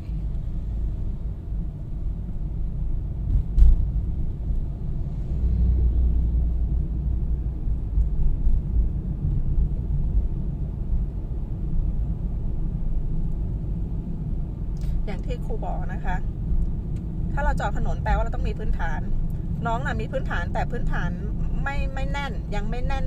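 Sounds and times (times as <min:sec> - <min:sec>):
car engine and road noise: 0:00.0 - 0:23.0
brief knock: 0:03.3 - 0:03.8.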